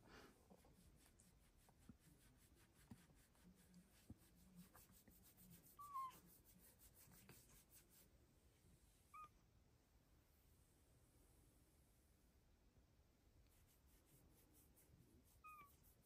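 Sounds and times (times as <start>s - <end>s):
hand stroking fur: 0.6s - 8.1s
cat chirping: 5.8s - 6.2s, 9.1s - 9.4s, 15.4s - 15.8s.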